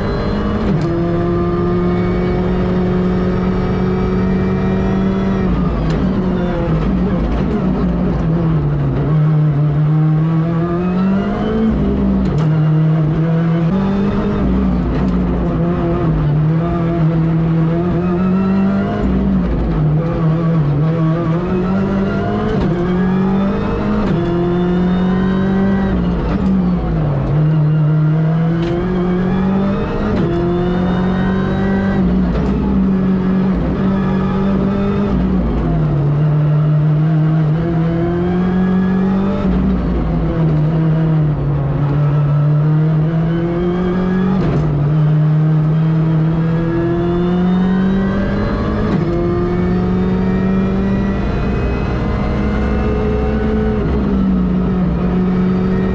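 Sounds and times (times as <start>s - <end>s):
rally car engine accelerating: 0.0s - 55.9s.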